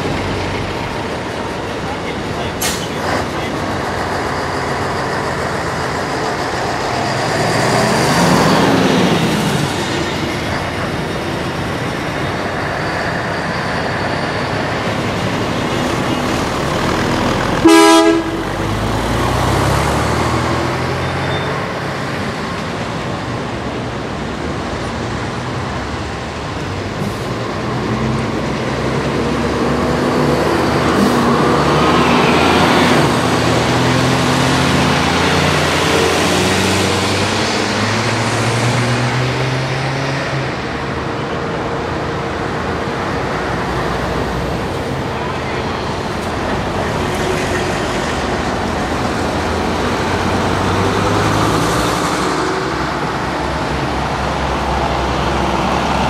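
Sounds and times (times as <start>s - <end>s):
buses driving past: 0.0s - 56.0s
short horn toot: 17.6s - 18.6s.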